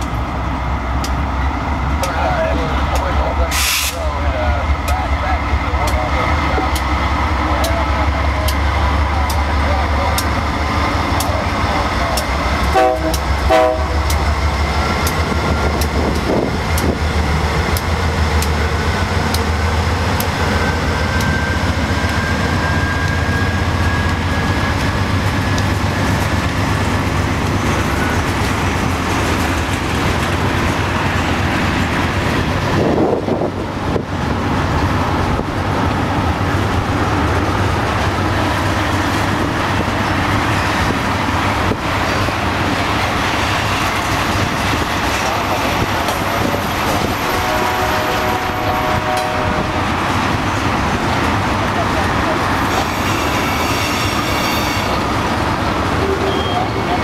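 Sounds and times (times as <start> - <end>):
diesel locomotive throb: 0.0 - 57.0
steel wheels rumbling on rail: 0.0 - 57.0
train horn toots: 12.7 - 14.2, 47.1 - 50.0, 52.6 - 55.0.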